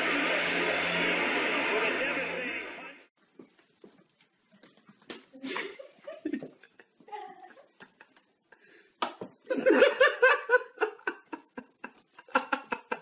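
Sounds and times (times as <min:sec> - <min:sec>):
person laughing: 0:05.4 - 0:08.4, 0:09.5 - 0:13.0.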